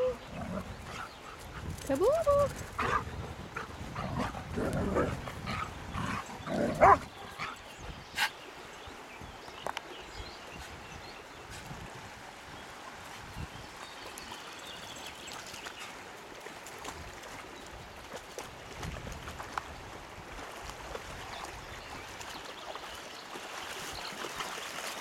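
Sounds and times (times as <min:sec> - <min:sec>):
dog barking: 0:06.8 - 0:07.1.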